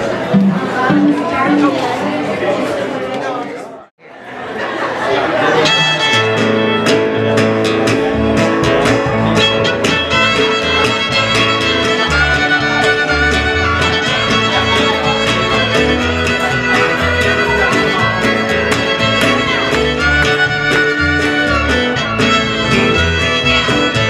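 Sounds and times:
acoustic guitar strumming: 0.0 - 2.6, 5.4 - 24.0
bass line: 5.6 - 24.0
fiddle melody: 5.6 - 24.0.

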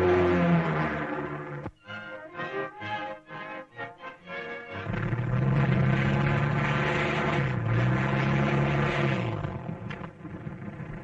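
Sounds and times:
propeller engines running: 0.0 - 1.8, 4.1 - 11.0.

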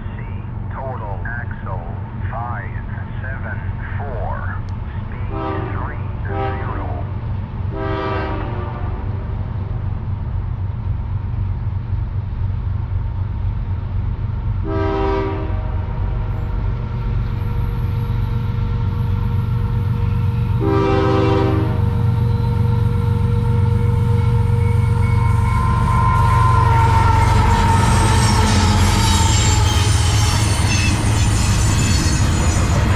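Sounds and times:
diesel engines rumbling: 0.0 - 32.9
locomotive air horn blasts: 5.3 - 6.9, 7.7 - 9.1, 14.6 - 15.8, 20.6 - 21.9.

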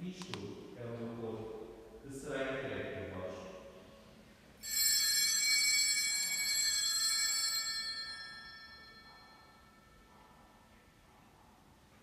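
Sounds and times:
altar bell ringing: 4.6 - 10.1.

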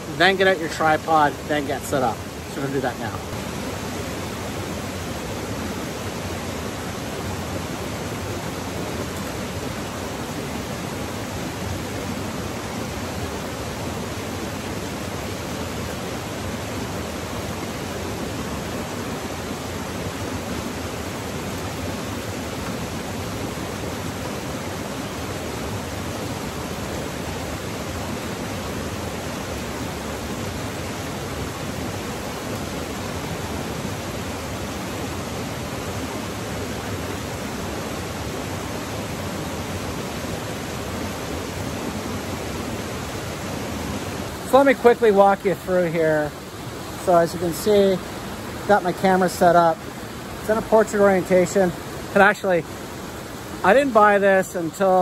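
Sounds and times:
waterfall and rushing stream: 0.0 - 55.0.

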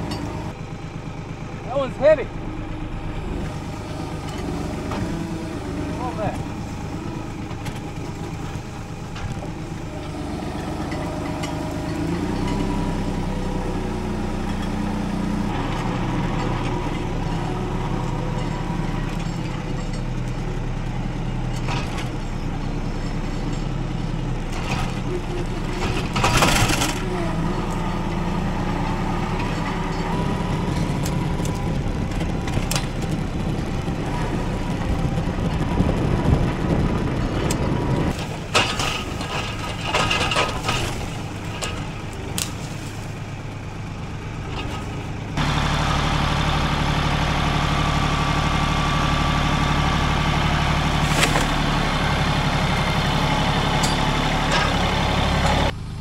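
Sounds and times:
tractor engine running: 0.0 - 56.0
grapple crushing brush and wood: 37.5 - 43.6, 50.9 - 51.9.

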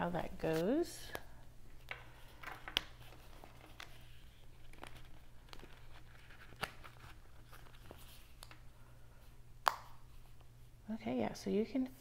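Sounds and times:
cards rustling: 0.2 - 8.7.

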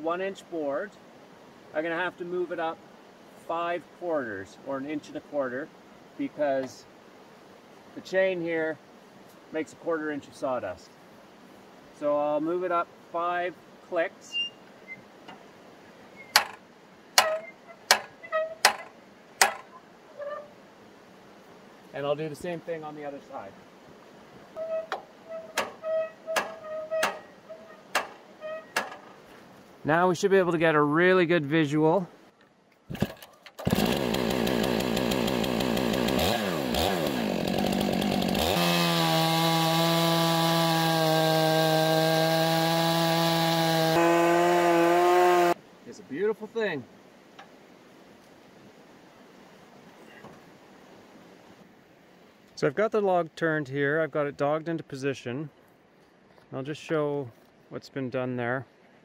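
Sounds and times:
chainsaw revving and cutting log: 32.9 - 45.6.

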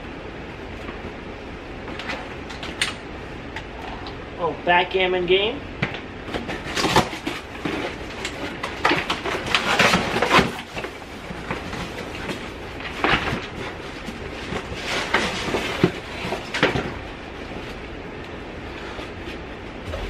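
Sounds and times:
cardboard flaps rustling and scraping: 6.2 - 17.8, 18.6 - 20.0.

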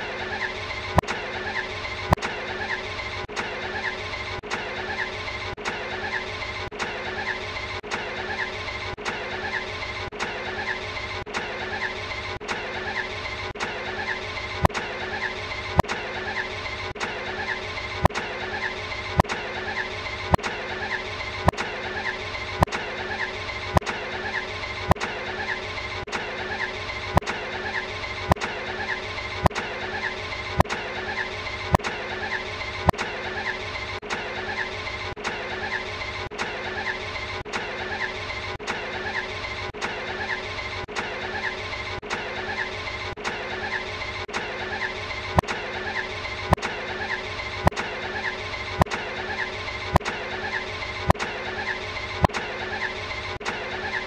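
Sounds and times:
sharp click: 10.1 - 10.4, 47.6 - 48.0, 48.8 - 49.1, 51.1 - 51.4, 52.2 - 52.5.

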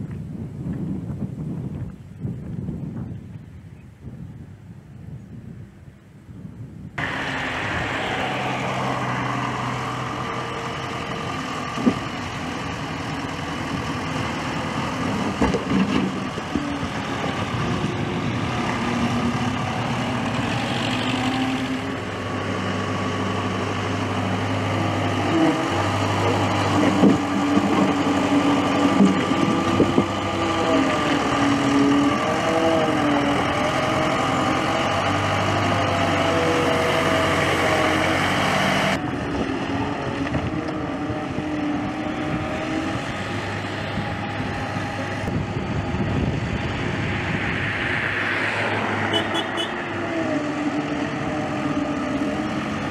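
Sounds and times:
diesel engine revving: 7.0 - 52.9.

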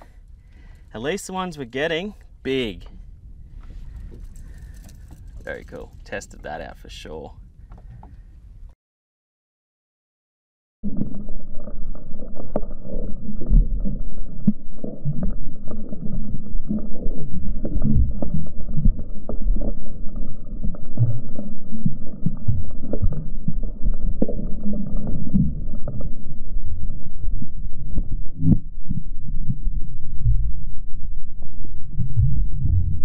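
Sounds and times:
muffled underwater sloshing: 10.9 - 33.0.

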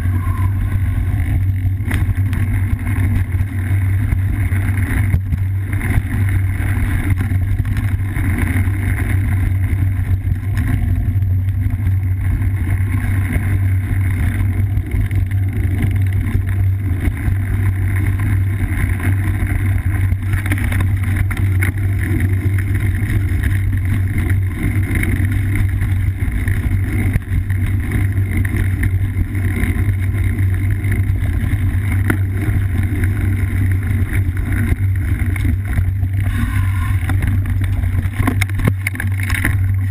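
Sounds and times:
wind buffeting: 0.0 - 4.8, 35.9 - 39.9
bike trail vibration: 0.0 - 39.9.

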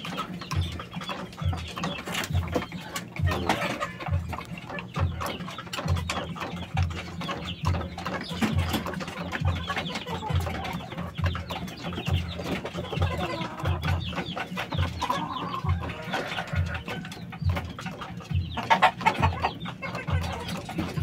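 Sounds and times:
chickens clucking and chirping: 0.0 - 21.0.

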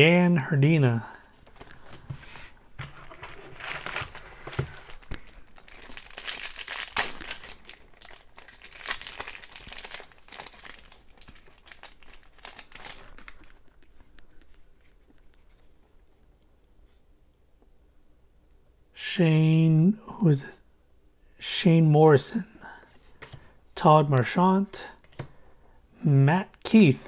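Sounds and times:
foil wrapper tearing and crinkling: 3.5 - 13.8.

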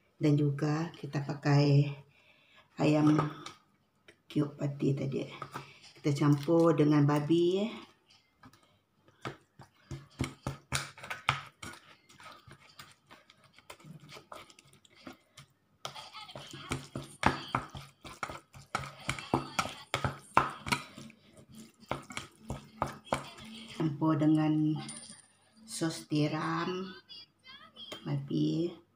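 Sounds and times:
plastic spoon tapping bowl: 3.0 - 3.5, 9.2 - 14.4, 15.8 - 23.5
wet meat squishing: 17.7 - 22.9.

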